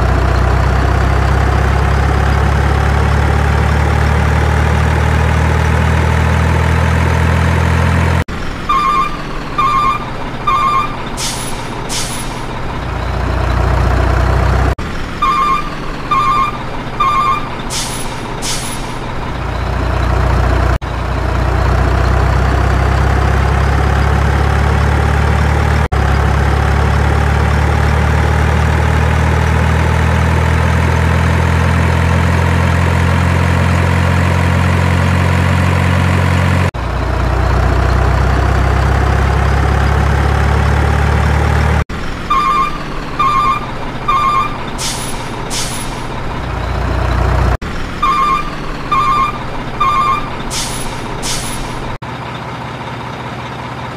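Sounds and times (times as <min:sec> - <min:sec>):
truck engine running: 0:00.0 - 0:53.9
reversing beeps: 0:08.7 - 0:11.0, 0:15.2 - 0:17.6, 0:42.2 - 0:44.7, 0:48.0 - 0:50.4
air brake hisses: 0:11.2 - 0:12.5, 0:17.7 - 0:19.0, 0:44.8 - 0:46.1, 0:50.5 - 0:51.9.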